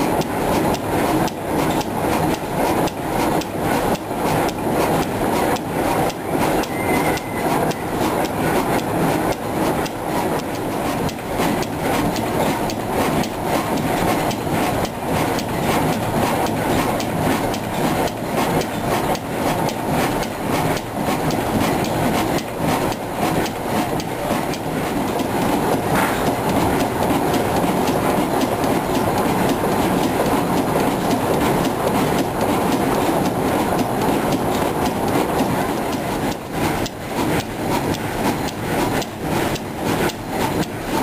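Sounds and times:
diesel engine knocking: 0.0 - 41.0.

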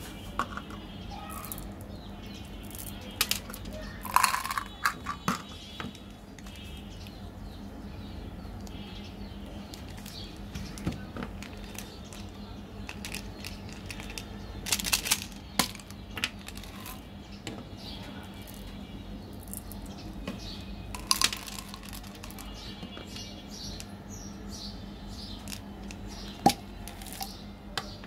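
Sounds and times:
plastic candy containers clicking: 2.6 - 7.2, 9.6 - 17.0, 19.4 - 23.9, 25.3 - 28.0.

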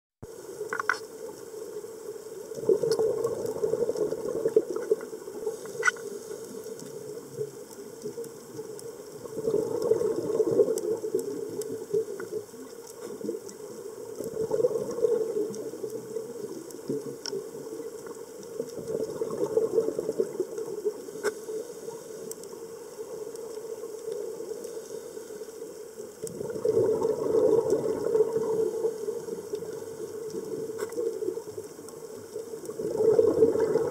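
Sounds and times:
underwater exhaled air bubbling: 0.2 - 33.9.

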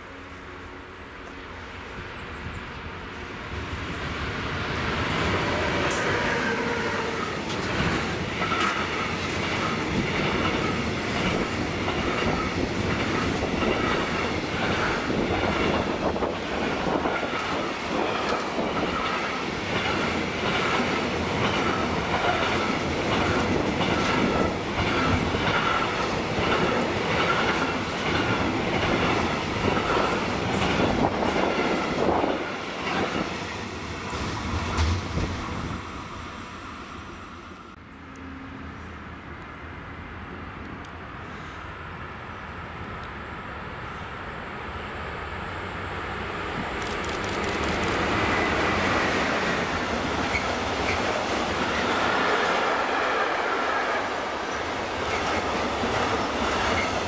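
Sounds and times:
freight train passing: 0.0 - 57.0
wheels clickety-clack on rails: 3.4 - 35.8, 46.4 - 57.0.

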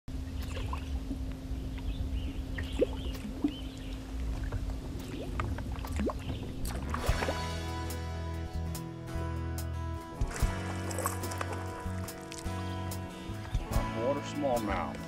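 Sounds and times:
low hum and rumble: 0.1 - 7.5
lure popping and splashing: 4.3 - 7.6, 10.2 - 13.7.

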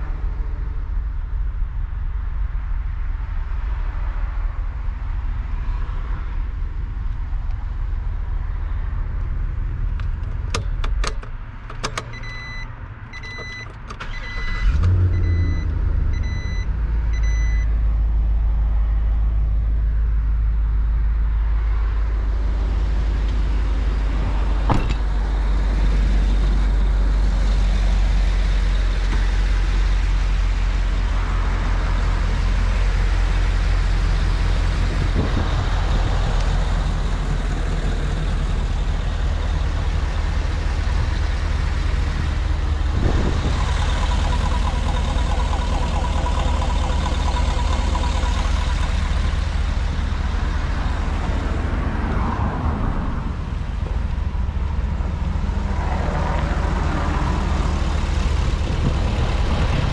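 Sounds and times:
truck engine starting and idling: 6.6 - 59.9
dashboard warning chime beeping: 12.1 - 17.7.

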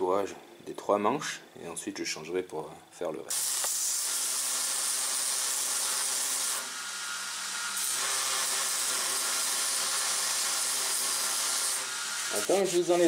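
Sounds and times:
belt grinder grinding hiss: 3.3 - 13.0.

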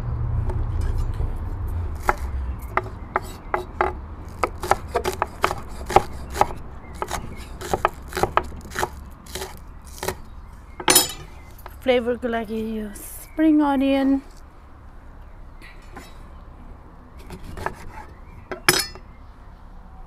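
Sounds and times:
knife chopping on cutting board: 2.0 - 10.2.

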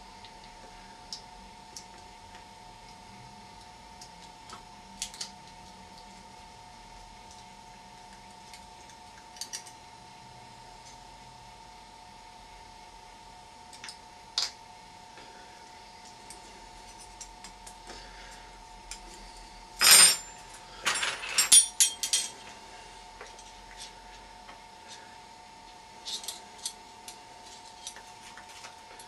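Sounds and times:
metal spoons clinking: 20.9 - 22.3.

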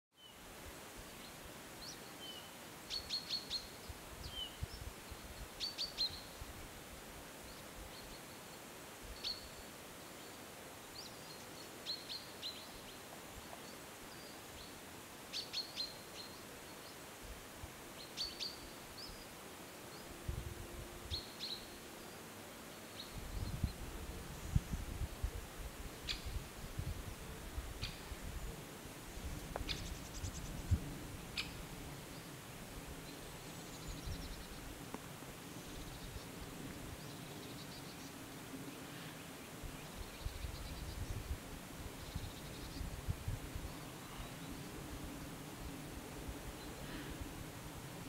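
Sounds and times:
faint outdoor hiss: 0.1 - 48.0
bird chirping: 26.0 - 26.4, 29.3 - 32.3.

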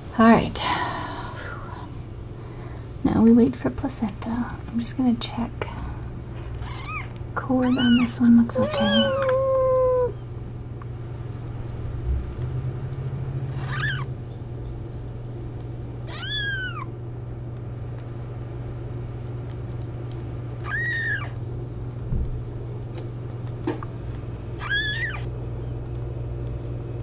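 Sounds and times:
kitten mewing: 6.6 - 10.2, 13.5 - 14.1, 16.0 - 16.9, 20.6 - 21.4, 24.6 - 25.3.

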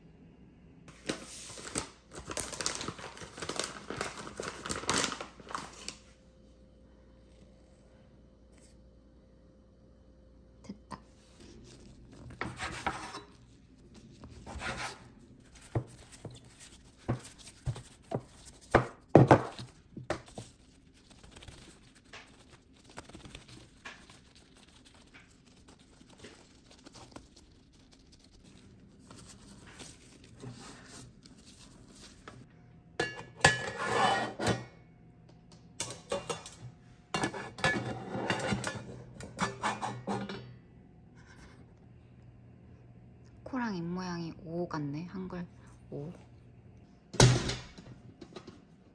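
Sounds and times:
hands rubbing dough: 11.2 - 32.4.

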